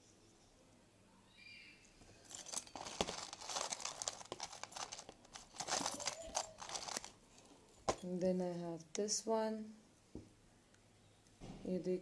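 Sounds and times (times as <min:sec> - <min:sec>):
plastic bag crinkling: 0:02.1 - 0:07.5.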